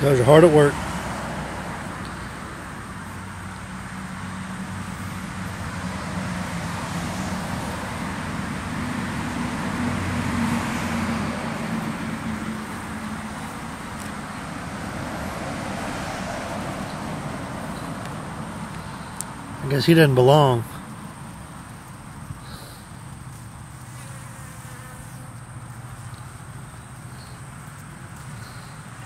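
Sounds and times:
honeybees buzzing: 0.0s - 29.0s
road traffic passing: 0.0s - 29.0s.

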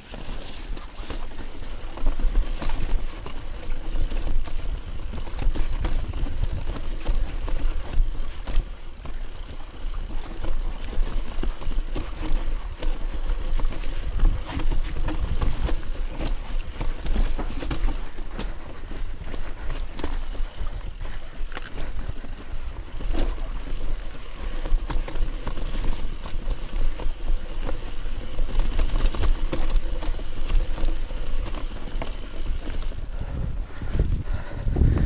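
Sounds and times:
bike rattling over rocks: 0.0s - 35.0s
wind buffeting microphone: 32.5s - 35.0s.

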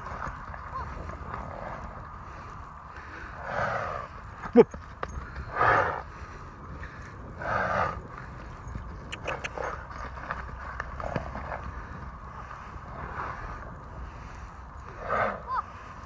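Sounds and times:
horse hoofbeats on grass: 0.0s - 2.9s, 3.6s - 14.1s.

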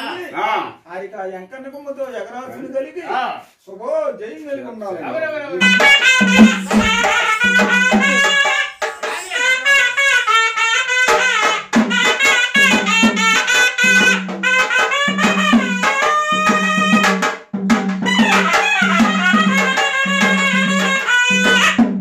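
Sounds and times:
double-reed pipe folk melody: 5.6s - 17.2s, 18.1s - 22.0s
drum strokes: 5.6s - 22.0s.

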